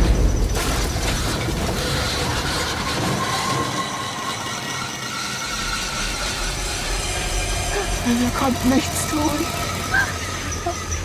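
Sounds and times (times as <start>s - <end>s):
car fire burning: 0.0s - 4.3s
low fire rumble: 0.0s - 4.5s.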